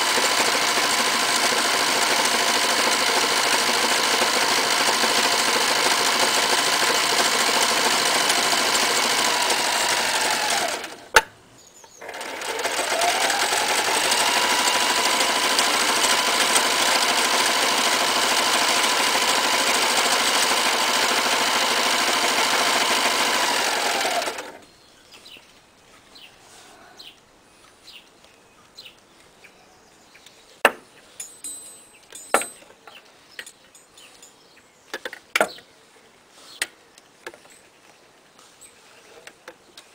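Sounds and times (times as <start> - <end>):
electric sewing machine running: 0.0 - 11.1, 12.0 - 24.6.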